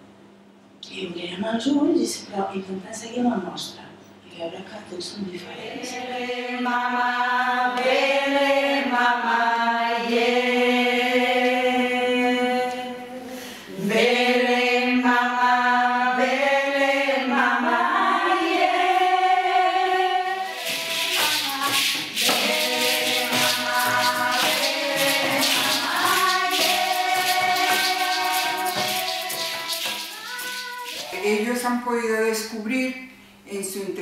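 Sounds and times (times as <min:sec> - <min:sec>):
women singing held notes: 0:05.8 - 0:31.3
shaken rattle percussion: 0:20.4 - 0:31.6.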